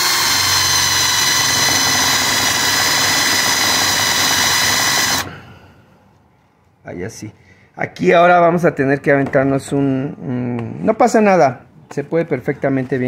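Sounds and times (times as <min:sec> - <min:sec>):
cordless drill boring into wood: 0:00.0 - 0:05.5.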